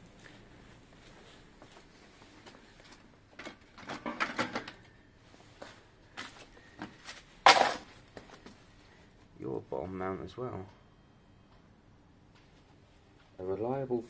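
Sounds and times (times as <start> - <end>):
objects knocking and rattling: 3.3 - 4.8, 7.4 - 8.0.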